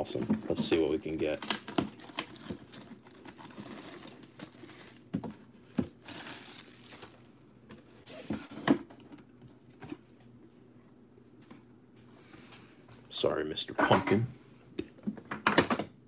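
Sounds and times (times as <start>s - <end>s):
plastic wrap crinkling: 0.5s - 5.1s, 5.9s - 7.3s.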